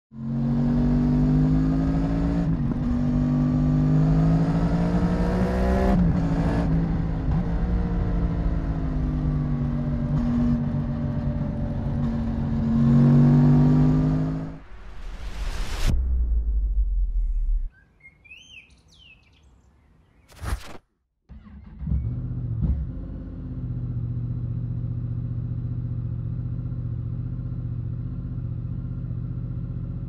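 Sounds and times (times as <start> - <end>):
motorcycle engine accelerating: 0.1 - 14.6, 21.3 - 30.0.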